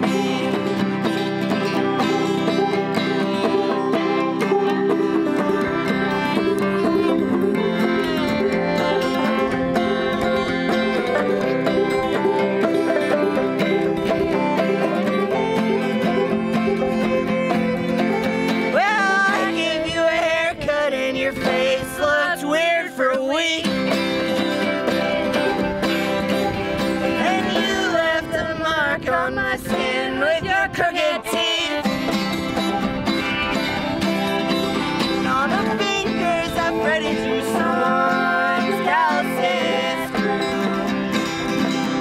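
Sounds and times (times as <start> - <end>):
wavering lead melody: 0.0 - 19.9, 31.3 - 42.0
bluegrass string band playing: 0.0 - 42.0
voices singing: 0.0 - 42.0.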